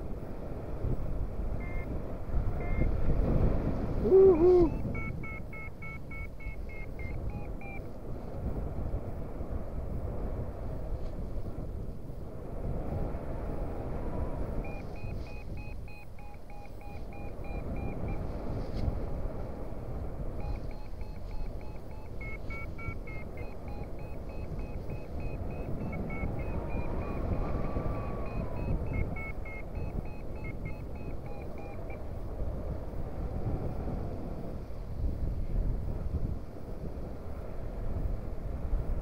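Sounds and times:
wind rushing on microphone: 0:00.0 - 0:39.0
variometer beeping in quick pips: 0:01.6 - 0:01.9, 0:02.6 - 0:02.9, 0:04.0 - 0:07.9, 0:14.6 - 0:18.3, 0:20.4 - 0:32.0.

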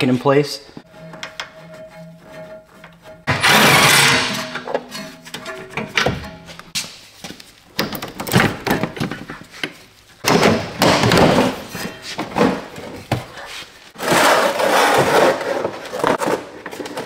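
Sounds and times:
scraping and rattling: 0:00.8 - 0:06.8.

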